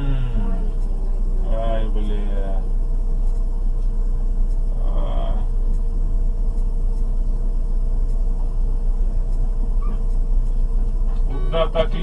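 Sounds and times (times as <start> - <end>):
short vocal sound: 0.0 - 0.7
car engine idling: 0.0 - 12.0.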